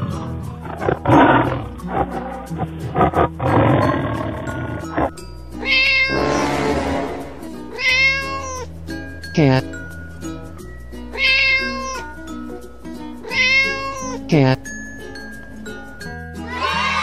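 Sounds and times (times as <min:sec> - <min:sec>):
cartoon background music: 0:00.0 - 0:17.0
animal call: 0:11.2 - 0:12.1
wavering animal call: 0:11.2 - 0:12.1.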